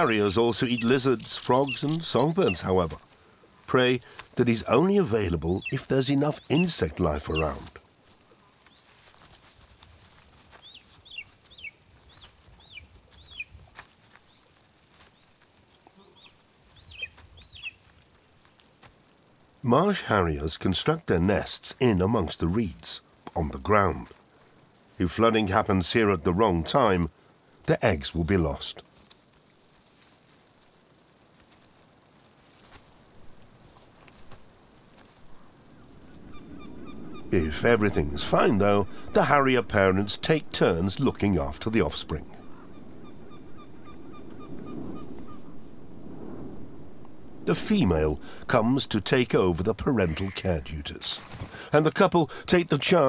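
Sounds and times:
insect trill: 0:00.0 - 0:53.0
faint ticks: 0:28.8 - 0:29.4.

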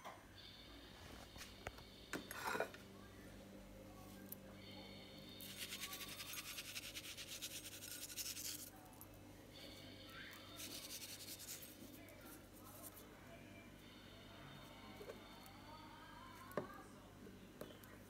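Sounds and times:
low steady hum: 0:00.0 - 0:18.0
spice shaker rattling: 0:05.4 - 0:08.7, 0:10.6 - 0:11.8.

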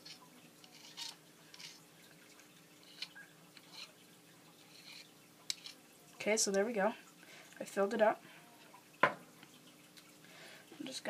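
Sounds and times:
screwdriver scraping gel fuel: 0:00.0 - 0:01.8.

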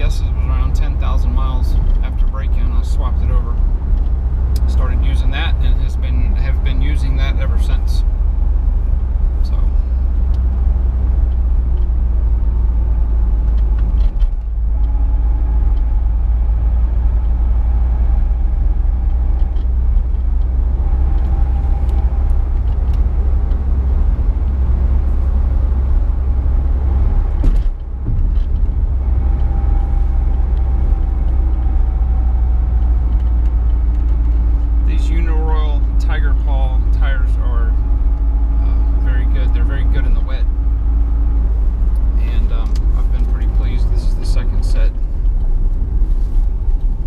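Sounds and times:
diesel engine running: 0:00.0 - 0:47.0
low road rumble: 0:00.0 - 0:47.0.

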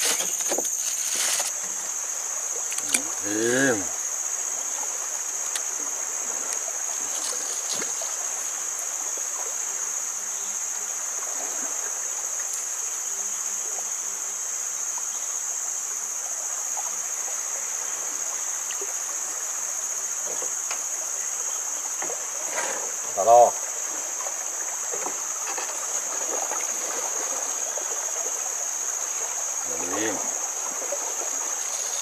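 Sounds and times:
high-pitched insect drone: 0:00.0 - 0:11.2, 0:22.9 - 0:32.0
river flowing: 0:00.0 - 0:14.5, 0:15.5 - 0:32.0
faint clicks: 0:02.7 - 0:03.2, 0:05.4 - 0:05.8.

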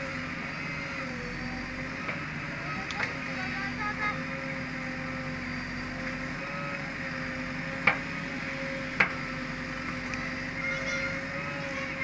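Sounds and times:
diesel engine under load: 0:00.0 - 0:12.0.

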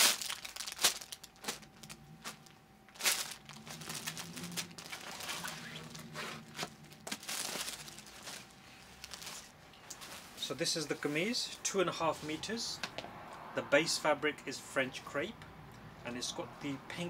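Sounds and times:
plastic bag crinkling: 0:00.0 - 0:10.5
fabric rustling: 0:00.0 - 0:11.3
faint steady hum: 0:00.0 - 0:13.4.

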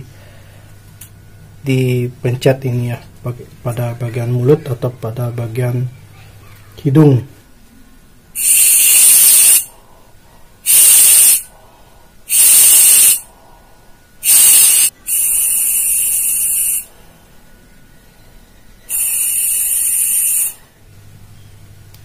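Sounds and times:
oxygen can hissing spurts: 0:08.4 - 0:09.7, 0:10.7 - 0:11.4, 0:12.3 - 0:13.2, 0:14.2 - 0:16.9, 0:18.9 - 0:20.6.

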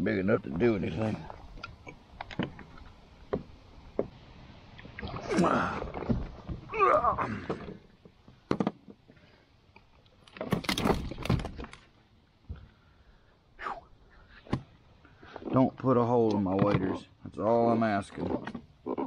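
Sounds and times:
fish splashing: 0:04.7 - 0:06.1.

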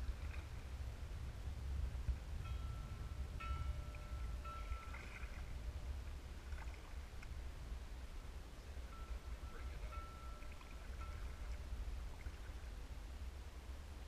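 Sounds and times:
water lapping against hull: 0:00.0 - 0:01.1, 0:03.0 - 0:07.8, 0:08.7 - 0:12.8
faint thin whine: 0:00.0 - 0:14.0
wind on microphone: 0:00.0 - 0:14.0.

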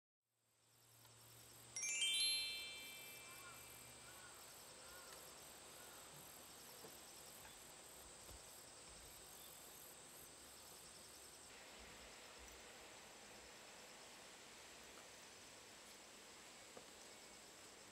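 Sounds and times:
insects chorus: 0:00.6 - 0:17.9
descending bell-like chime: 0:01.8 - 0:04.1
constant high tone: 0:01.8 - 0:04.6.

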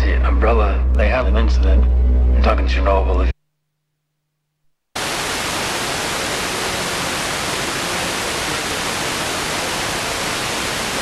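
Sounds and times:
tv static hiss: 0:05.0 - 0:11.0.

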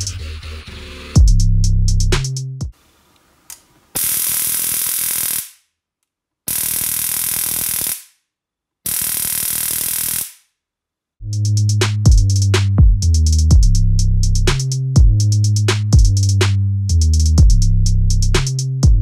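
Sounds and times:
electronic music with heavy beat: 0:00.0 - 0:02.7, 0:11.3 - 0:19.0
high-voltage sparking: 0:03.9 - 0:05.7, 0:06.5 - 0:08.2, 0:08.9 - 0:10.5.

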